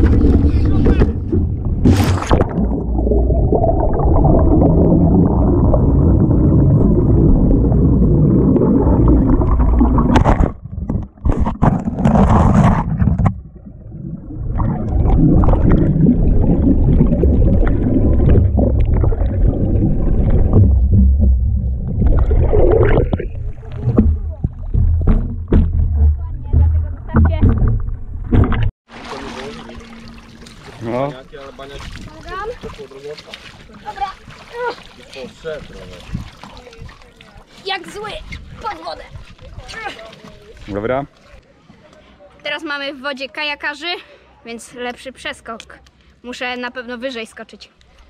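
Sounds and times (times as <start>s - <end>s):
muffled underwater rumbling: 0.0s - 28.7s
water splashing: 0.0s - 41.5s.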